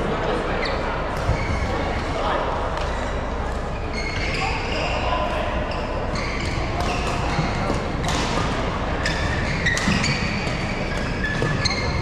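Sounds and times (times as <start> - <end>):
indoor hall noise: 0.0 - 12.0
shoes squeaking on floor: 2.8 - 8.3, 9.0 - 12.0.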